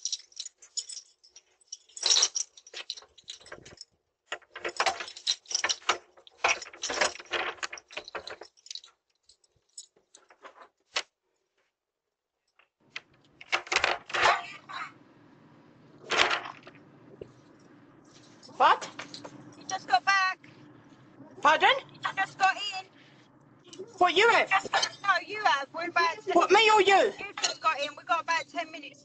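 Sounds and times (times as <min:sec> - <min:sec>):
keys jangling: 0:00.0 - 0:10.5, 0:17.5 - 0:19.9.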